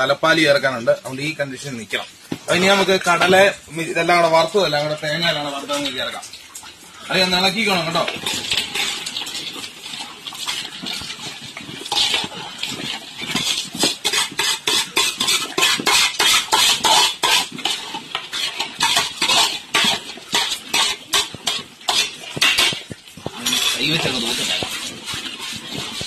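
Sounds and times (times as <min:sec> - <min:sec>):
metal spoon scraping metal basin: 0:07.6 - 0:26.0.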